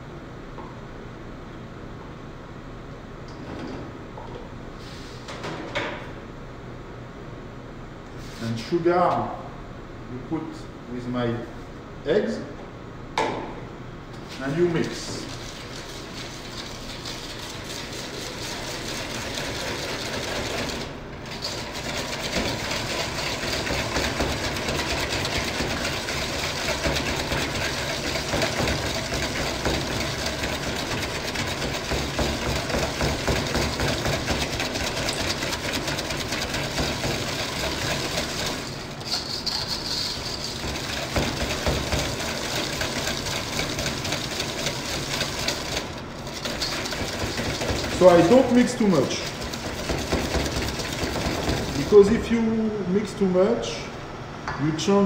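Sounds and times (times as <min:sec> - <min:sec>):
whisk beating in metal bowl: 0:14.6 - 0:52.6.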